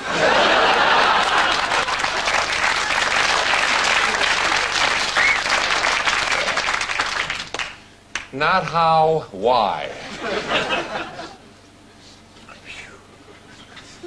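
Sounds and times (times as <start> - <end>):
audience applause: 0.0 - 7.8.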